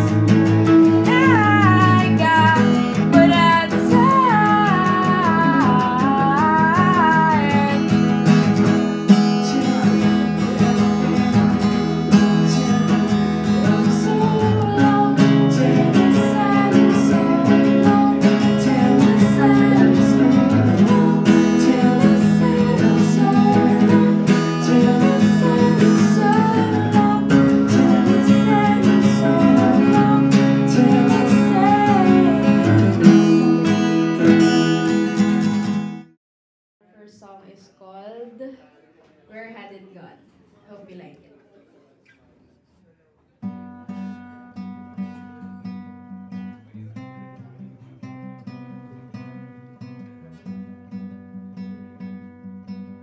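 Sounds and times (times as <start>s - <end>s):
acoustic guitars playing: 0.0s - 36.2s, 43.4s - 53.0s
woman singing: 0.9s - 8.5s, 9.1s - 11.4s, 12.2s - 34.6s.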